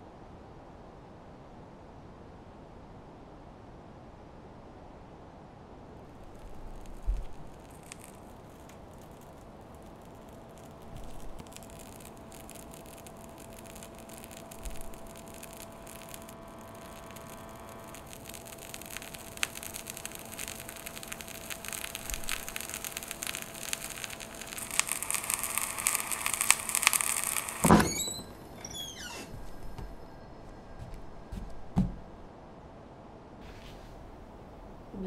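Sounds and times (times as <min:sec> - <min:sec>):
electronic static hiss: 0:06.0 - 0:32.3
irregular crackling: 0:06.0 - 0:32.3
faint hum tone: 0:06.1 - 0:32.7.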